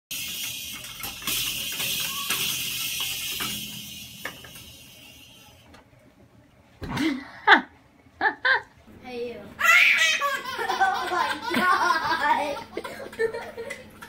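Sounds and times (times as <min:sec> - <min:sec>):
toy cymbal ringing: 0:00.1 - 0:05.7.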